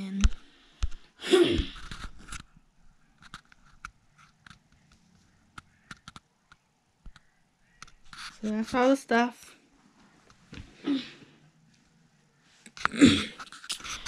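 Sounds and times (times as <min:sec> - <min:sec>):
faint clicks and crackles: 0:00.0 - 0:09.0, 0:11.6 - 0:14.0
camera handling rustle: 0:01.8 - 0:02.5, 0:03.1 - 0:05.0, 0:13.4 - 0:14.0.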